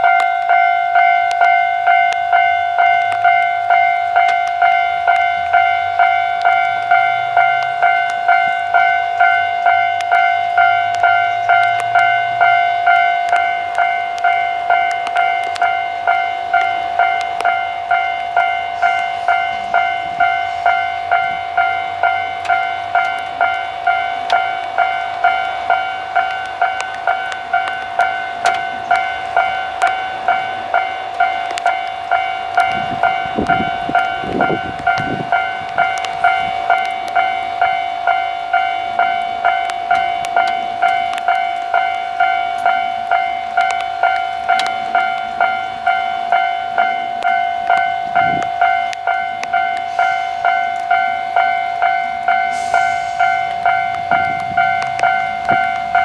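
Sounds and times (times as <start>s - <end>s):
level crossing bell ringing: 0.0s - 56.0s
short hiss: 52.5s - 53.4s.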